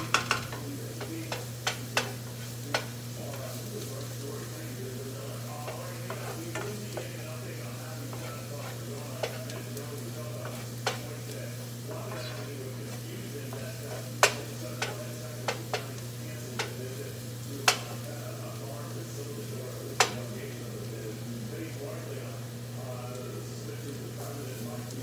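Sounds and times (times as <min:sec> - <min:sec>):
spoon knocking against pan: 0:00.0 - 0:03.4, 0:05.6 - 0:07.4, 0:08.1 - 0:11.4, 0:12.0 - 0:16.8, 0:17.6 - 0:18.0, 0:20.0 - 0:20.2
garlic sizzling in a pan: 0:00.0 - 0:25.0.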